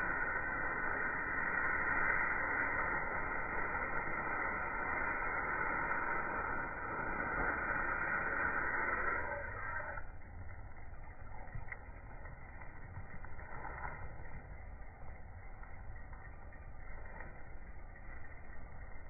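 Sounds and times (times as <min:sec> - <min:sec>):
smoke firework hissing: 0:00.0 - 0:10.2.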